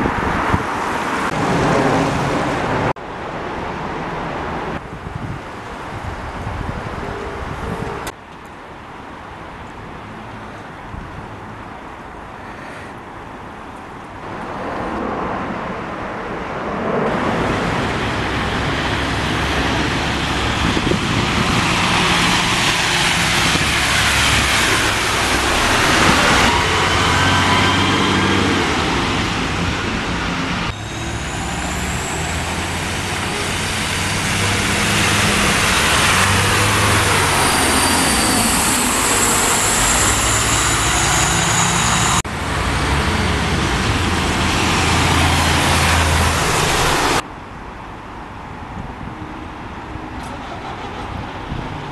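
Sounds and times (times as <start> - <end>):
diesel bus engines: 0.0 - 51.9
traffic noise: 0.0 - 51.9.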